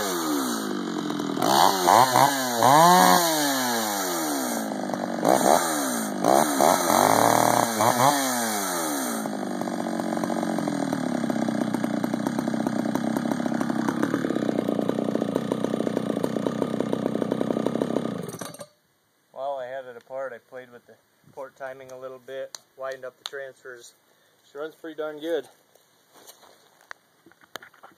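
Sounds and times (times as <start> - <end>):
chainsaw revving and idling: 0.0 - 18.7.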